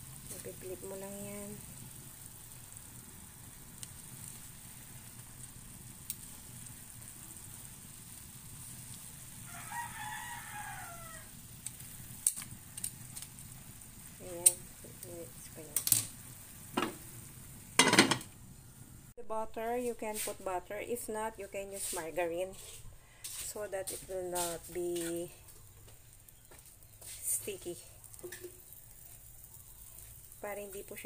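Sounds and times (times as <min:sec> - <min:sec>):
pot simmering: 0:00.0 - 0:19.2, 0:20.0 - 0:31.0
rooster crowing: 0:09.4 - 0:11.4
metal tongs and lid clinking: 0:17.8 - 0:18.3.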